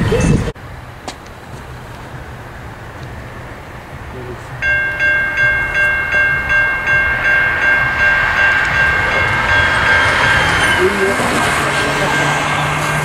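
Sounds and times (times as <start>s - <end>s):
crossing warning bell ringing: 4.5s - 13.0s.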